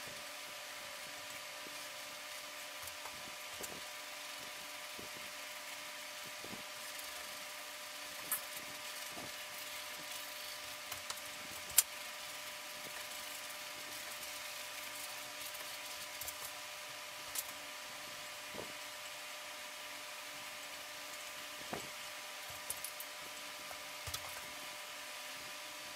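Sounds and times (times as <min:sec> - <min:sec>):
room hum: 0:00.0 - 0:25.9.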